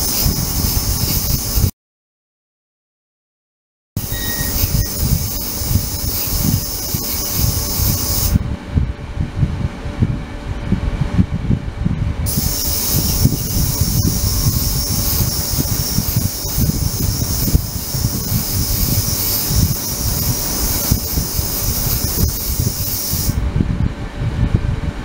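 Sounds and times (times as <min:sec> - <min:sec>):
ultrasonic cleaner hissing: 0:00.0 - 0:01.7, 0:04.0 - 0:08.4, 0:12.3 - 0:23.4
constant low rumble: 0:04.0 - 0:25.0.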